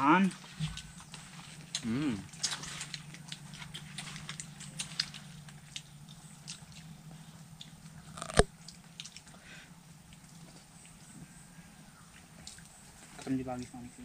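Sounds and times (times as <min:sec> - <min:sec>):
low steady hum: 0:00.0 - 0:14.0
crab shells crunching and cracking: 0:08.0 - 0:09.2.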